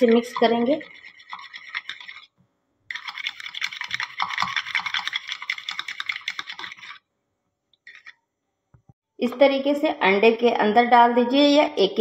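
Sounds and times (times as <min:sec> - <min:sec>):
fork beating egg whites in bowl: 0:00.0 - 0:07.1, 0:07.8 - 0:08.2.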